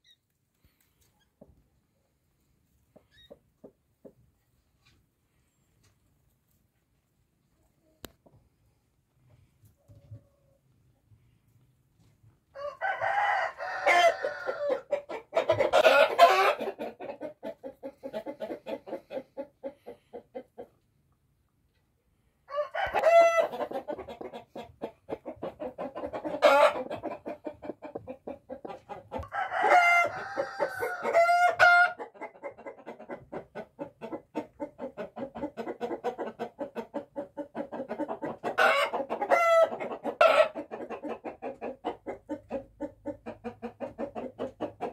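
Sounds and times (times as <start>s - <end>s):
chickens clucking: 12.6s - 21.2s, 22.5s - 44.9s.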